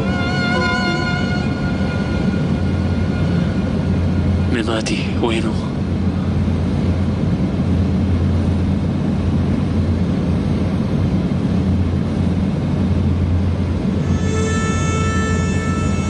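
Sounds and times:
sustained reed-like note: 0.0s - 4.5s, 14.0s - 16.0s.

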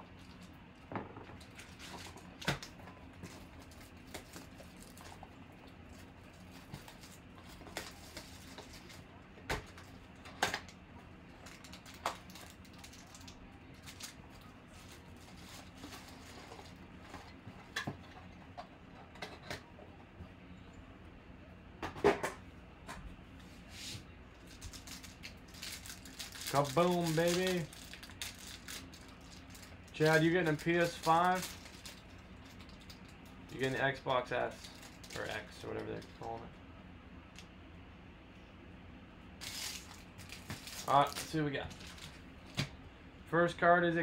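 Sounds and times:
faint steady hum: 0.0s - 44.0s
cardboard and foil rustling: 6.0s - 9.1s, 11.3s - 17.6s, 24.4s - 33.9s, 34.5s - 36.3s, 39.4s - 42.6s.

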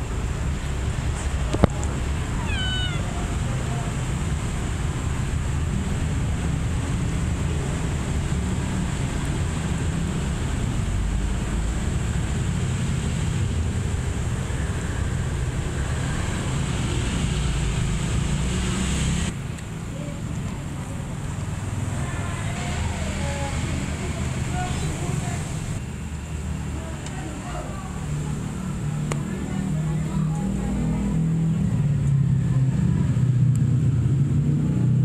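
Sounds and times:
kitten mewing: 2.3s - 3.5s.

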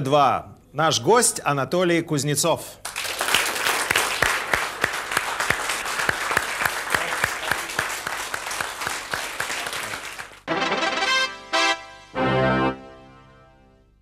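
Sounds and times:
studio audience applauding: 2.8s - 10.5s
theme music: 10.5s - 14.0s.

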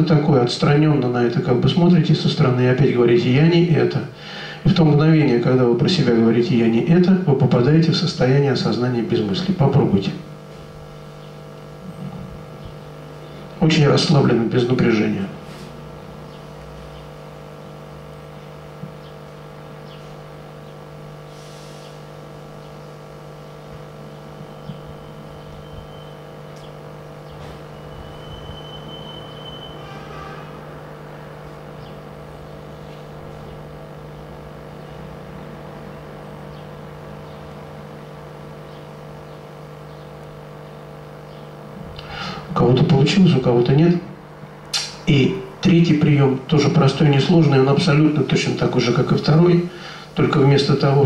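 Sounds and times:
steady room hum: 0.0s - 51.0s
thin high tone: 27.7s - 31.4s.

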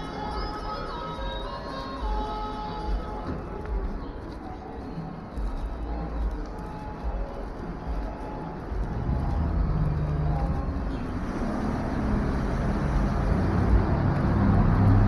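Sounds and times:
street traffic: 0.0s - 15.0s
vehicle engine humming: 6.2s - 15.0s.

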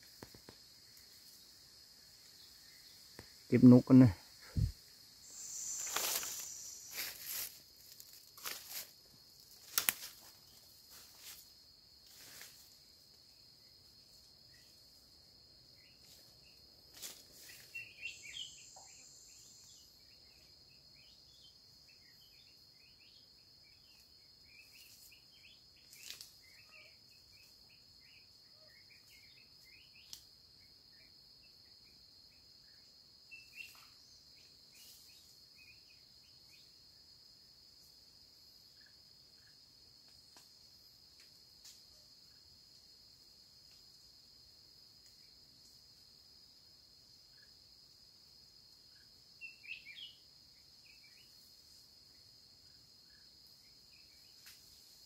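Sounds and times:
faint chirps: 0.0s - 8.8s, 17.4s - 36.8s, 48.9s - 52.2s
insects droning: 0.0s - 55.0s
dry leaf litter crackling underfoot: 5.3s - 9.0s.

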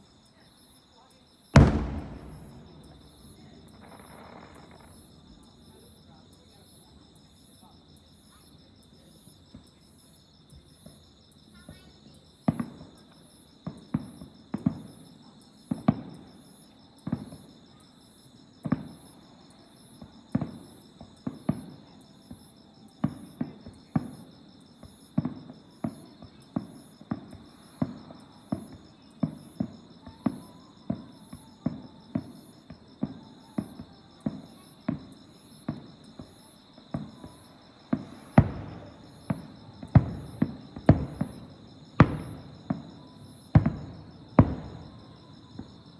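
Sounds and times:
insects chirping: 0.0s - 45.9s
fireworks bursting: 1.5s - 5.9s, 19.9s - 45.9s.

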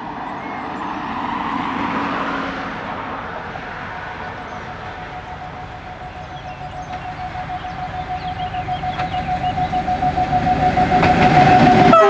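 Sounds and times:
diesel locomotive engine: 0.0s - 12.0s
locomotive horn: 4.8s - 12.0s.

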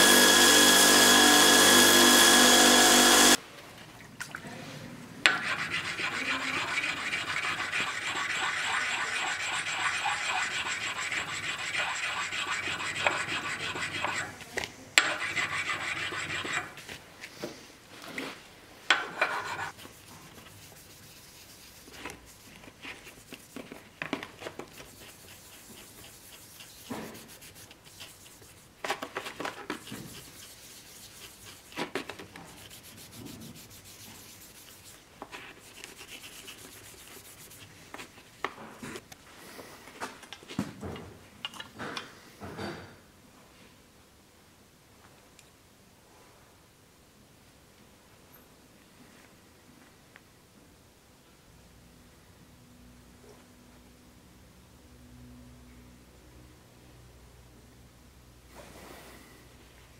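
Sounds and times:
hand file rubbing on steel: 0.0s - 3.4s, 5.3s - 14.4s, 15.0s - 16.8s, 19.1s - 23.8s, 24.6s - 28.8s, 29.4s - 38.1s.

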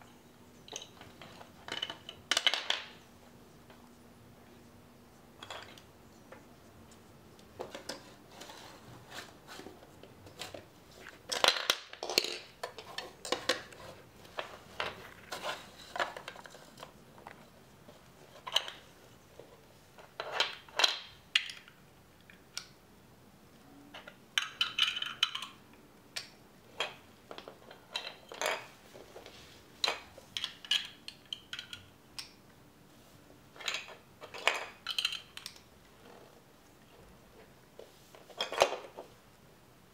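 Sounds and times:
plastic bricks clattering: 0.7s - 3.0s, 10.2s - 16.9s.

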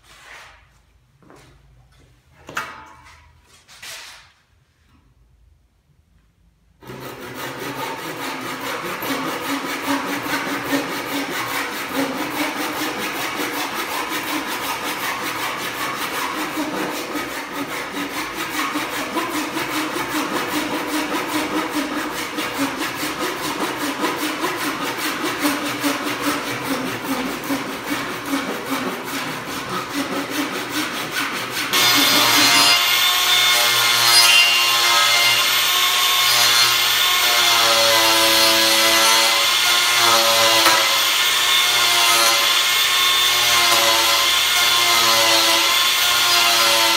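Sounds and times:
wood being sawn: 6.8s - 46.9s
power tool whining on wood: 31.7s - 46.9s.

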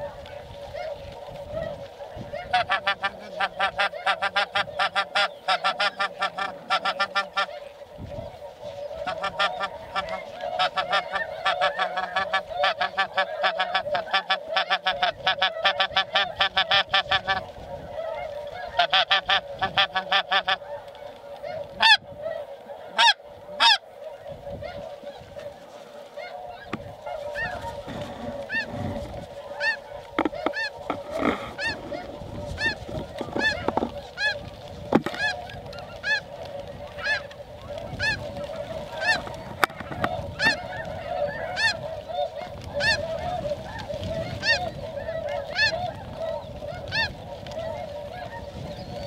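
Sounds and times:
snow geese honking: 0.0s - 49.0s.

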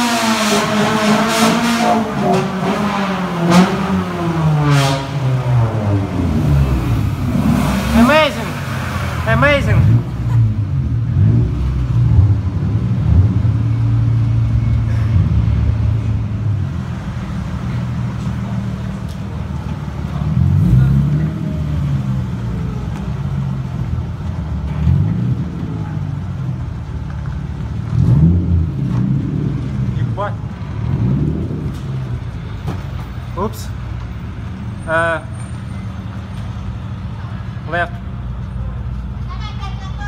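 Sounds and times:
car engine and road noise: 0.0s - 40.0s.

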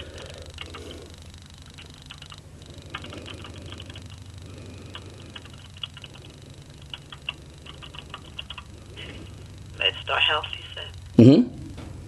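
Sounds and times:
steady low phone line hum: 0.0s - 12.0s
computer keyboard typing: 0.6s - 0.9s, 1.8s - 4.3s, 4.9s - 8.7s.

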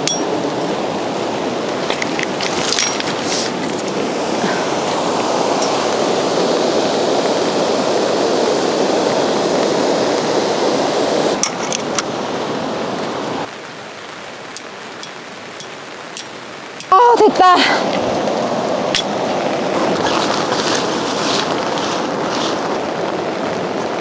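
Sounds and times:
rushing river water: 0.0s - 24.0s
tent peg into gravel: 1.8s - 4.0s.

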